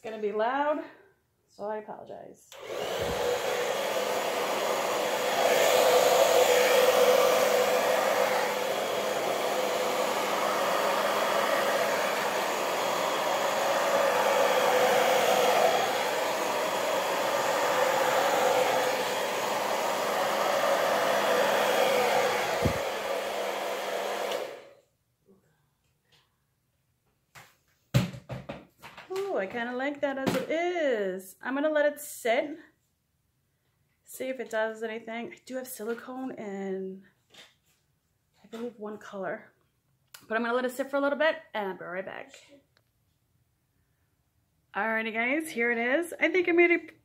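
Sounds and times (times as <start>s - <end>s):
hair dryer running: 2.5s - 24.8s.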